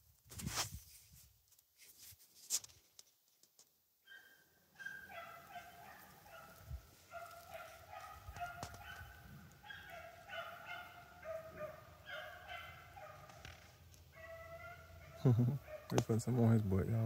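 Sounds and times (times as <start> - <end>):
dogs baying: 4.1 - 13.4, 14.2 - 16.0.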